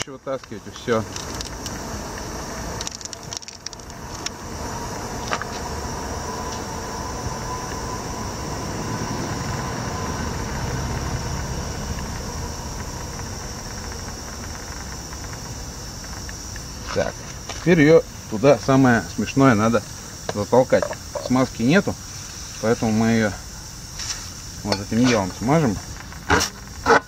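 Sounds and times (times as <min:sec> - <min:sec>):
vehicle engine running: 0:00.5 - 0:20.3.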